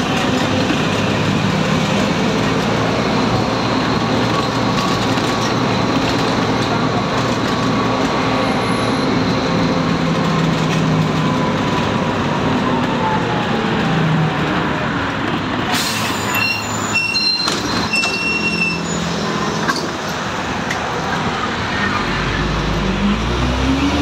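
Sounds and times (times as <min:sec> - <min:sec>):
bus engine and road noise: 0:00.0 - 0:24.0
high-pitched squeals: 0:15.9 - 0:20.0.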